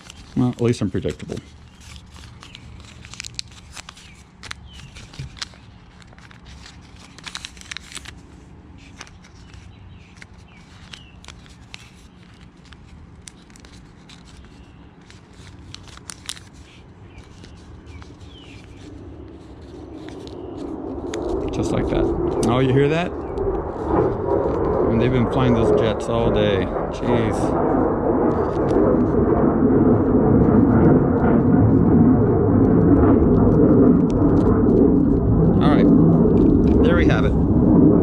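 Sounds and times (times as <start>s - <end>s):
paper rustling and crackling: 0.0s - 21.7s
jet aircraft rumble overhead: 0.0s - 38.0s.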